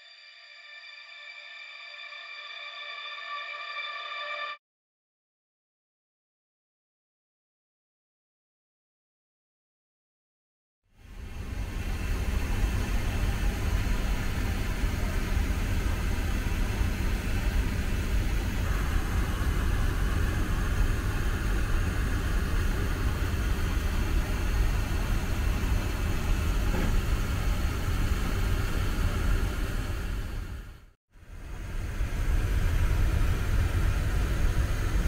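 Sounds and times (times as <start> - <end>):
airliner engines rumbling: 11.1 - 30.6, 31.3 - 35.0.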